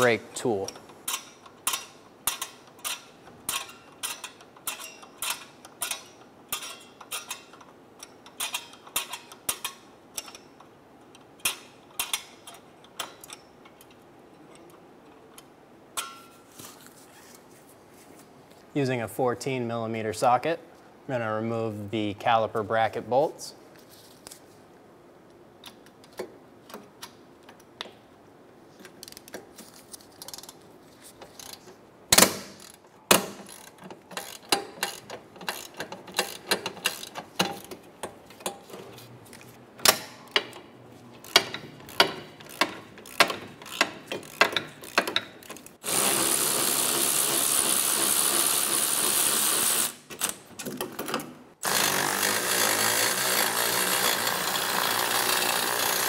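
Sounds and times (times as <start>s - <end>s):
socket ratchet clicking: 32.2s - 37.8s, 41.2s - 46.3s
power tool running: 45.8s - 50.0s, 51.6s - 56.0s.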